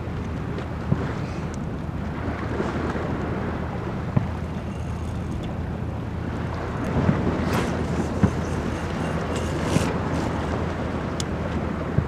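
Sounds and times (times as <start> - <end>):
wind buffeting microphone: 0.0 - 12.0
waves washing against rocks: 6.1 - 12.0.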